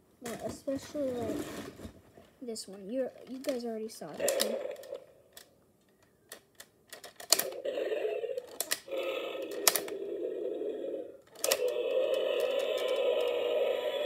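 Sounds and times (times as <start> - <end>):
rough steady toy sound: 0.2 - 14.0
sharp plastic clicks: 3.3 - 7.6, 8.4 - 10.0, 11.2 - 13.5.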